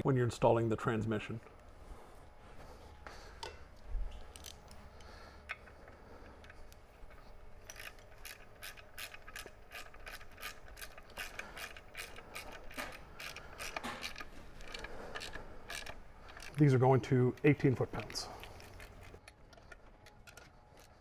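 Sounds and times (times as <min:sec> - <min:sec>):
ratcheting wrench clicking: 0:04.2 - 0:21.0.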